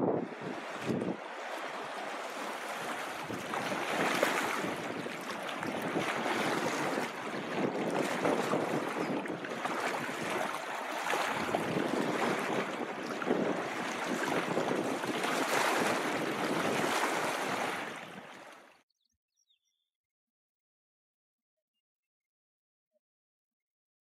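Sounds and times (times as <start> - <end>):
wind blowing in surges: 0.0 - 18.2
waves lapping on rocky shore: 0.0 - 18.7.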